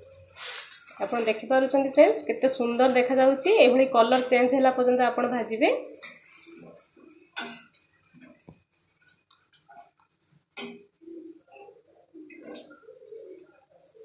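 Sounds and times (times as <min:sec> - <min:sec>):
spatula scraping frying pan: 0:00.0 - 0:11.0.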